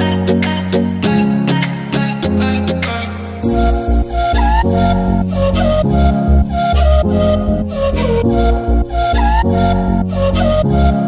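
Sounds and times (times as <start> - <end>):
steady bass: 3.4 - 11.0.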